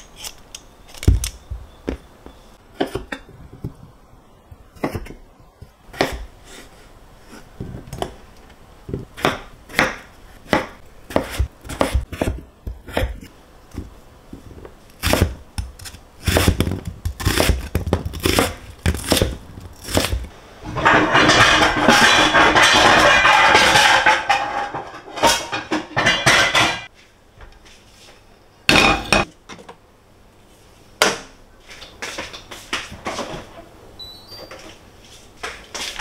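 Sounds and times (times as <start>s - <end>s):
utensils and dishes clattering: 20.6s - 26.9s.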